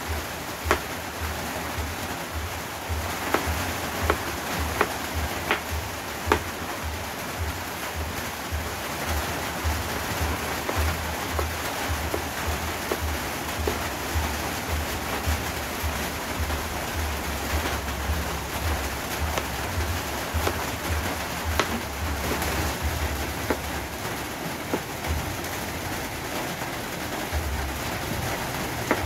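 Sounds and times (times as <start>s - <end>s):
rain hissing: 0.0s - 29.0s
knife cutting on plastic board: 3.3s - 5.7s, 20.4s - 22.8s.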